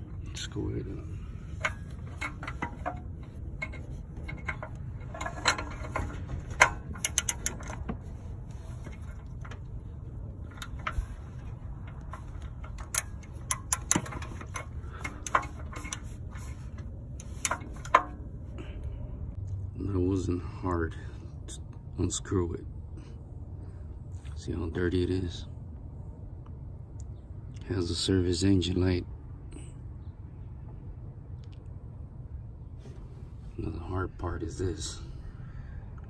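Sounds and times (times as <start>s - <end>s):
steady low rumble: 0.0s - 36.0s
socket wrench metallic clicks: 12.0s - 16.0s.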